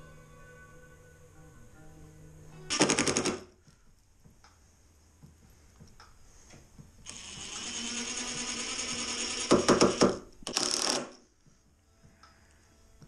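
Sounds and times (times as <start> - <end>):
drill-driver whirring: 7.1 - 11.2.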